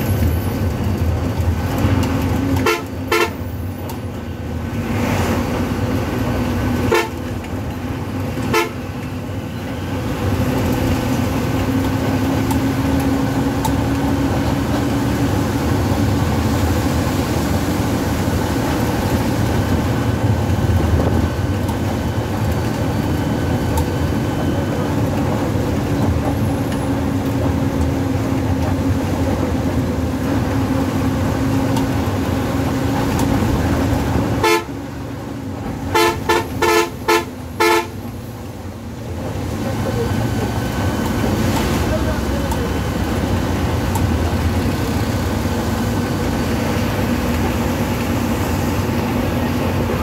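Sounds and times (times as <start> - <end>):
bus engine and road noise: 0.0 - 50.0
bus horn toots: 2.5 - 3.6, 6.8 - 7.4, 8.4 - 9.0, 34.3 - 35.0, 35.8 - 38.2.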